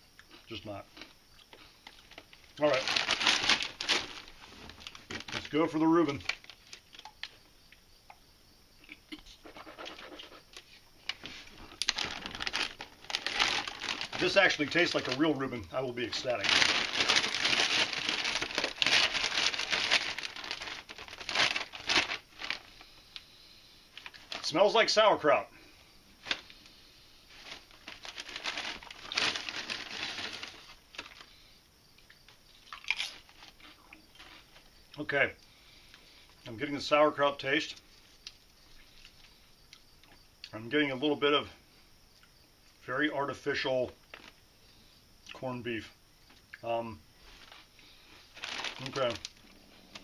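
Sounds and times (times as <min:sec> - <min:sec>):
chip bag crinkling: 0:01.0 - 0:07.3, 0:11.0 - 0:22.9, 0:23.9 - 0:25.0, 0:26.2 - 0:26.6, 0:27.3 - 0:31.3, 0:32.6 - 0:34.7, 0:44.0 - 0:44.4, 0:47.2 - 0:50.0.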